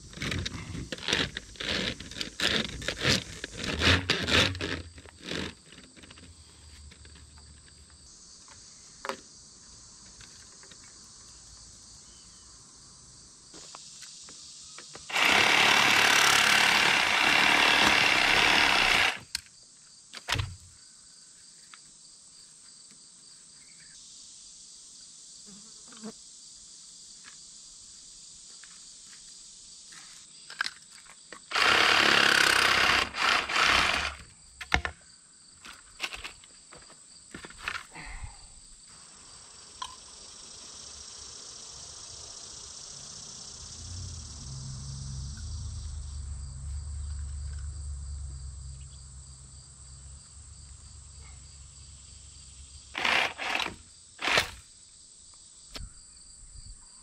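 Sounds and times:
crickets and insects droning: 0:00.0 - 0:57.0
low rumble: 0:43.6 - 0:51.2.

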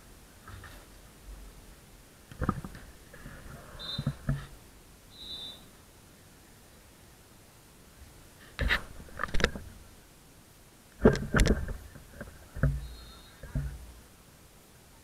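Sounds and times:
sharp knocks and thumps: 0:11.0 - 0:13.9.

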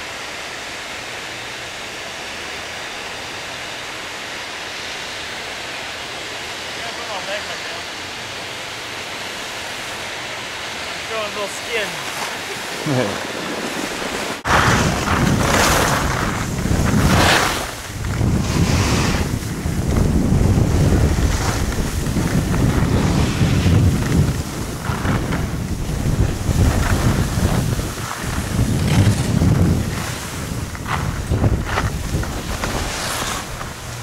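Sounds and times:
skis scraping on snow: 0:02.9 - 0:34.0
wind buffeting microphone: 0:12.3 - 0:34.0.

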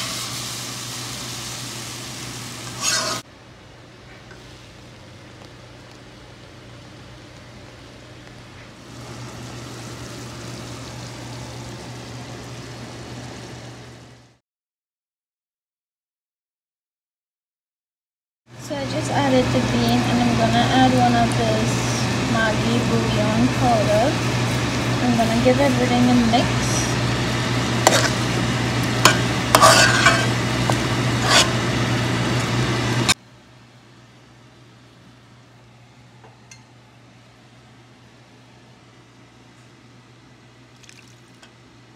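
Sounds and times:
steady sizzle: 0:00.0 - 0:03.3, 0:04.3 - 0:14.4, 0:18.8 - 0:33.2
metal spoon scraping a pot: 0:02.7 - 0:03.2, 0:27.8 - 0:28.2, 0:29.1 - 0:30.4, 0:31.2 - 0:31.6
stew bubbling in a pot: 0:40.7 - 0:41.5.

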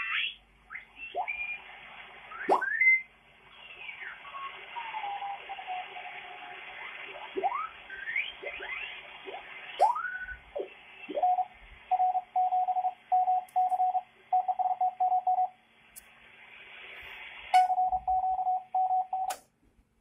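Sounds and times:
radio band hiss: 0:00.9 - 0:11.9, 0:16.0 - 0:17.7
morse code beeps: 0:11.3 - 0:15.5, 0:17.6 - 0:19.4.

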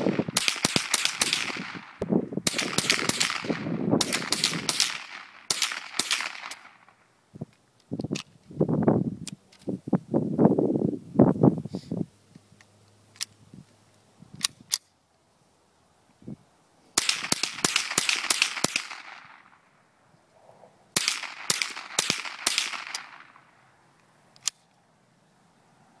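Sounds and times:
rifle shots: 0:00.0 - 0:07.0, 0:17.0 - 0:19.7, 0:21.0 - 0:23.5
sharp clicks: 0:24.0 - 0:24.8.

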